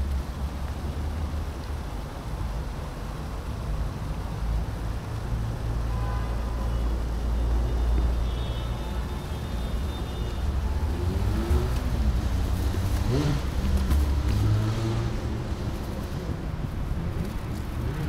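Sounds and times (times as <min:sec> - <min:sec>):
cars passing with low rumble: 0:00.0 - 0:18.0.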